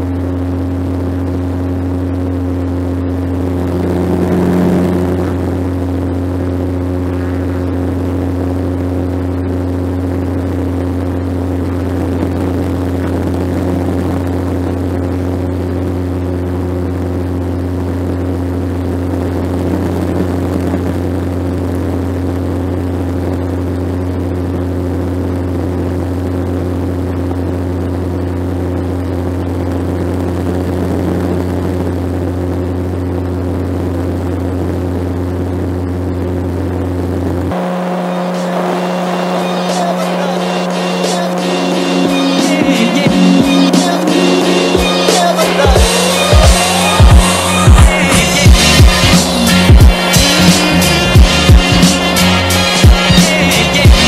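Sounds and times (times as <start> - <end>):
propeller engine drone: 0.0 - 53.9
air noise rushing: 3.0 - 15.2.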